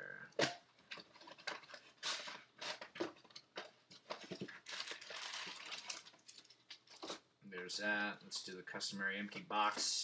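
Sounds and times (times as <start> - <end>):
packaging crinkling and rustling: 0.8 - 7.3.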